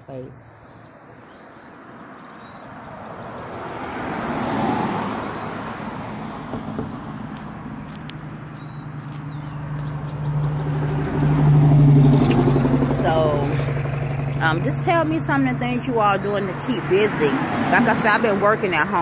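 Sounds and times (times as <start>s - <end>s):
vehicle passing: 0.0s - 19.0s
engine drone: 9.4s - 19.0s.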